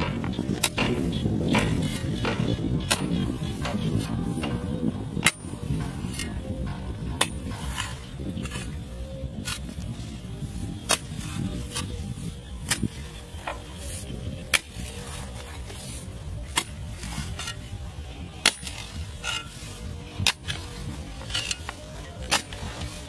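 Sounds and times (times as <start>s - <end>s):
digging tool striking hard dirt: 0.0s - 4.6s, 5.2s - 6.3s, 10.8s - 11.9s, 12.6s - 13.6s, 14.4s - 15.5s, 16.4s - 17.7s, 18.4s - 19.6s, 20.2s - 22.8s
low rumble: 0.0s - 23.0s.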